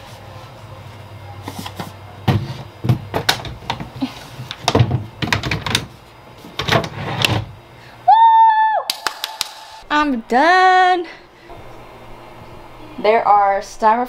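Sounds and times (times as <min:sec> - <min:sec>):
drawer knocking and clattering: 0:04.6 - 0:05.9.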